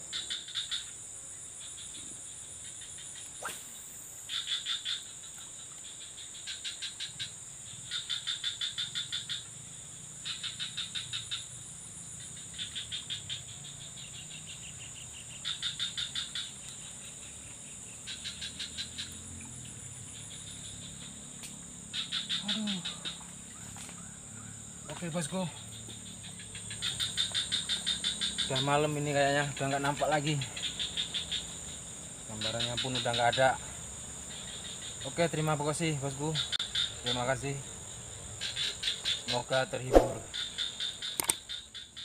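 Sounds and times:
frogs pulsed calls: 0.0 - 42.0
insects droning: 0.0 - 42.0
casting rod swish: 3.4 - 3.7, 39.9 - 40.3.

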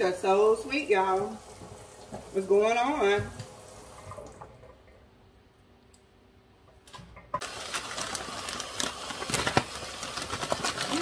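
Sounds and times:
tap water splashing into sink: 1.2 - 5.0.

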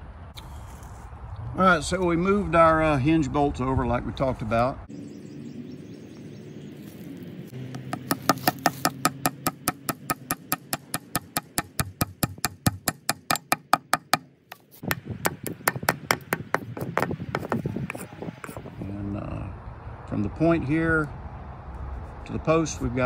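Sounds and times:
hammer tapping wooden dowel: 7.7 - 18.0.

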